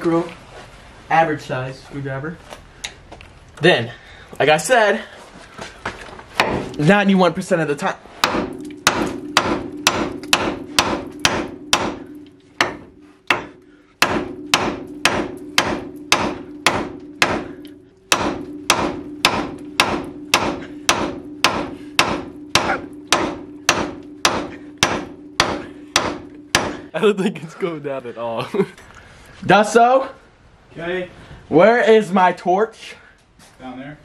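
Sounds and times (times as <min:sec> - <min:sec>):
hammer striking steel: 0:08.2 - 0:26.9.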